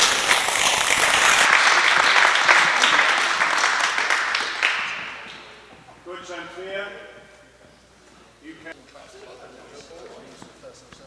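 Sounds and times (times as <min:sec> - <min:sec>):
small group applauding: 0:00.0 - 0:05.6.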